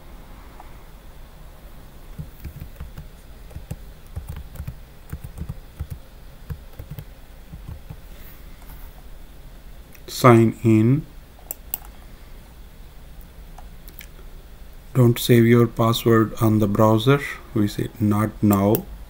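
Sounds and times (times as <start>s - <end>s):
keyboard key clicks: 2.2s - 8.0s.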